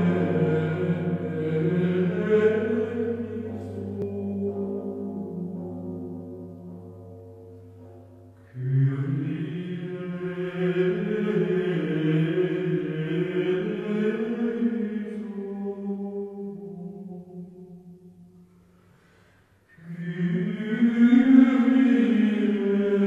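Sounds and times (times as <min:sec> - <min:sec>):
low held tone: 0:00.0 - 0:09.6.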